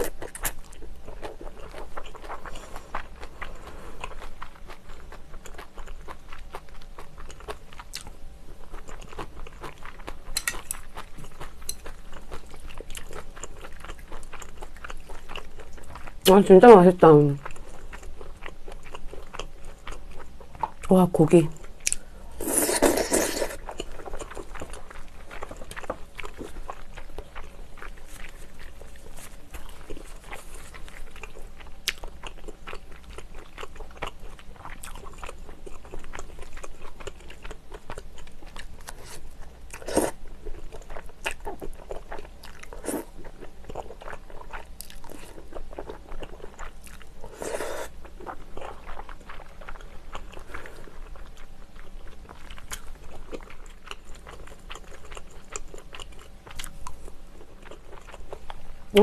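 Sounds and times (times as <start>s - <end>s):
slurping noodles: 22.4s - 23.6s
chewing and mouth smacking: 22.6s - 47.1s, 48.1s - 59.0s.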